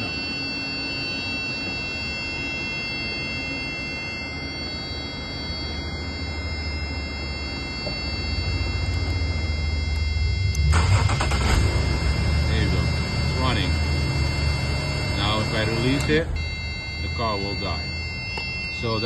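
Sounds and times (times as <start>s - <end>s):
car engine cranking and starting: 10.4s - 16.5s.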